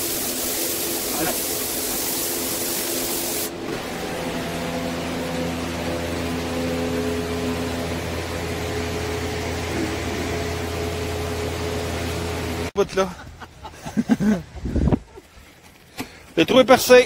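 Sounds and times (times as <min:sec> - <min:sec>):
paint spray gun hissing: 0:00.0 - 0:03.5
steady machine hum: 0:00.0 - 0:12.8.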